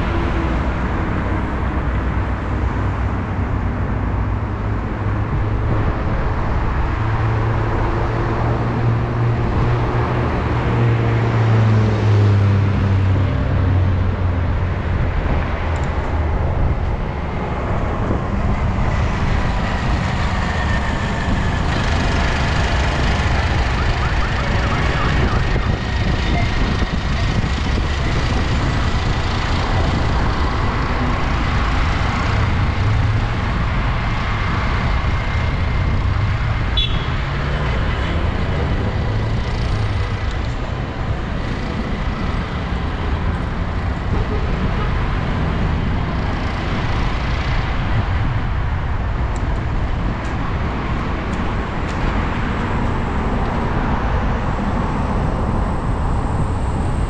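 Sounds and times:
city street traffic: 0.0 - 57.0
wind rumble on microphone: 0.0 - 57.0.

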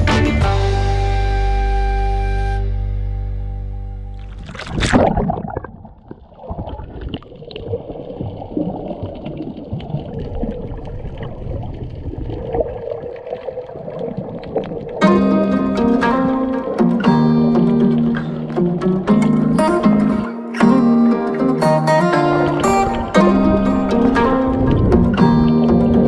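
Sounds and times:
underwater rumbling wash: 4.2 - 19.2, 22.2 - 26.0
faint underwater clicks: 4.2 - 20.8
water splash: 4.2 - 20.8, 21.8 - 26.0.

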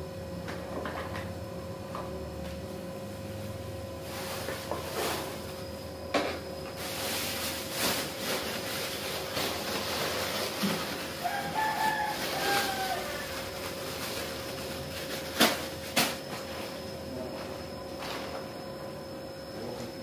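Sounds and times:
plastic bags rustling: 4.0 - 5.6, 6.8 - 16.6
rooster crowing: 11.2 - 13.6.

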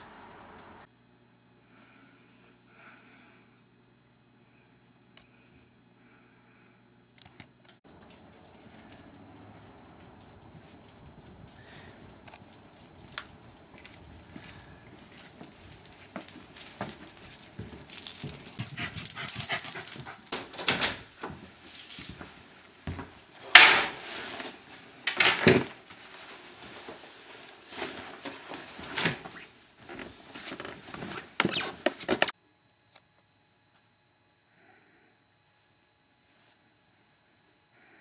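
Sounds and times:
keys jangling: 7.9 - 23.8.

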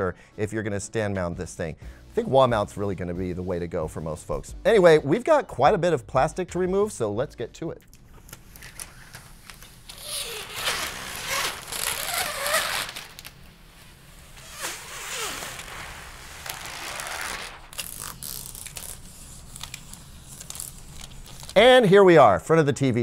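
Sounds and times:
plastic film being peeled off: 8.0 - 21.6.

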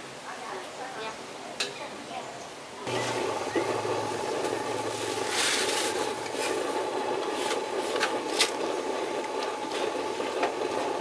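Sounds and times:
utensil scraping a pan: 4.5 - 8.8.

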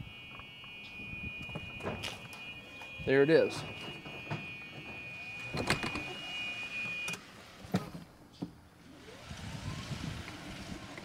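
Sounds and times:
reverse warning buzzer: 0.0 - 7.2.

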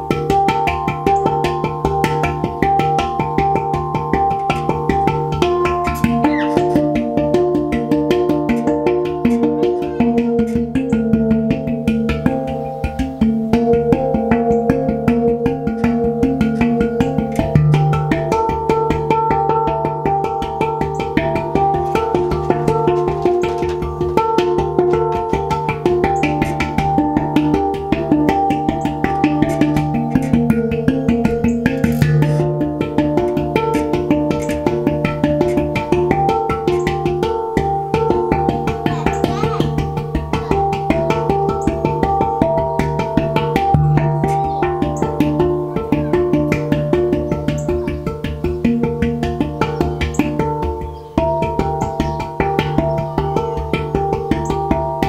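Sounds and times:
handpan ringing notes: 0.0 - 55.0
sustained low tone: 29.1 - 33.8, 43.6 - 46.3.

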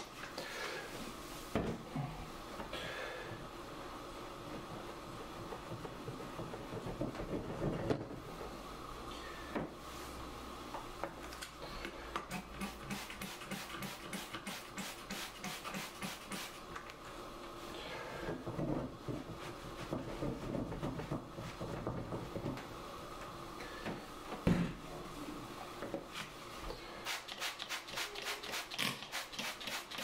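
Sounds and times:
spray bottle hissing sprays: 12.3 - 16.6, 27.0 - 30.0.

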